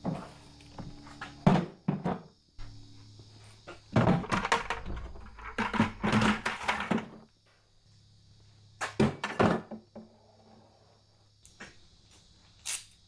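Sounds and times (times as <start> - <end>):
plastic buckets clattering: 3.7 - 7.3, 8.8 - 10.1.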